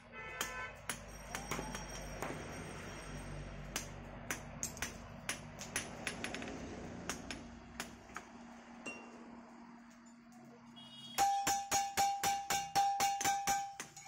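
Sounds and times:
hammer striking iron on anvil: 0.4 - 2.4, 11.2 - 14.0.

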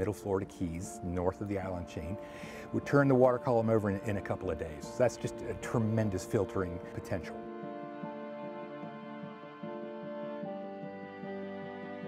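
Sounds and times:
soft background music: 0.0 - 12.0.

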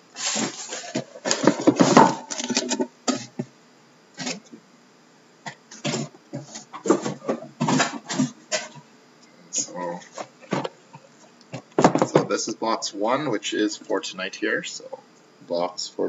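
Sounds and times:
cardboard scraping and rustling: 0.2 - 3.5, 4.2 - 4.5, 5.7 - 8.8
boxes knocking as stacked: 0.4 - 3.3.

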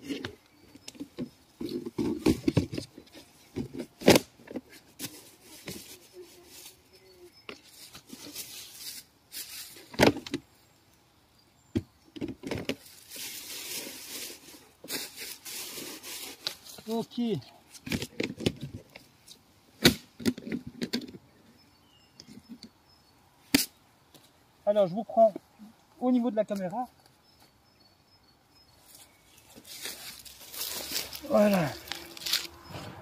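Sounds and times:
brushing hiss: 7.6 - 9.9, 13.0 - 17.1.

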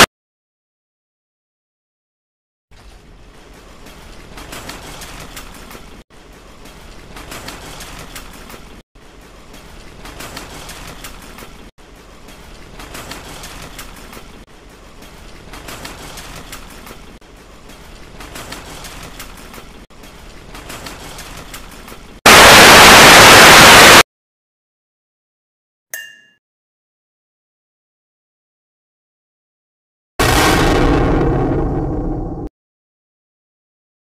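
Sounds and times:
shopping cart wheels rattling: 2.8 - 22.2
loud static hiss: 22.3 - 24.0.

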